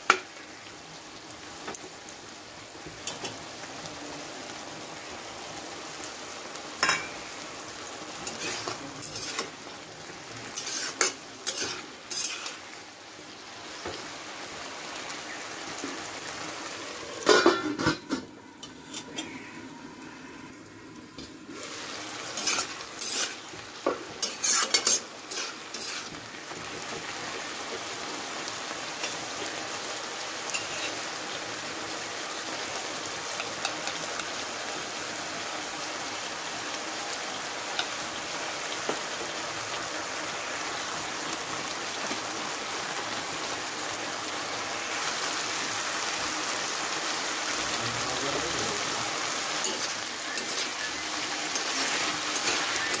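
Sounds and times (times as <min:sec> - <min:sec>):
food sizzling: 0:00.0 - 0:53.0
spatula scraping wok: 0:08.2 - 0:09.6, 0:10.4 - 0:12.7, 0:17.2 - 0:27.2, 0:30.5 - 0:31.0, 0:48.1 - 0:53.0.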